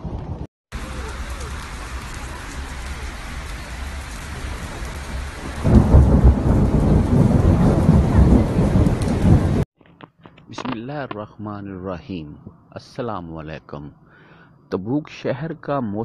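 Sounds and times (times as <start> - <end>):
thunder rumbling: 0.0 - 9.6
steady rain: 0.7 - 9.6.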